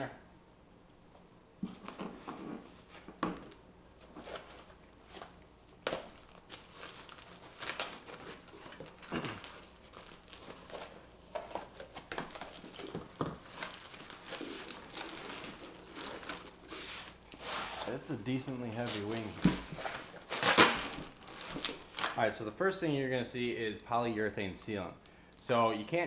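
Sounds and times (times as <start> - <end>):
packing wrap crinkling and rustling: 1.7 - 22.5
scissors cutting packing wrap: 20.3 - 22.2
sharp tearing: 20.3 - 22.2.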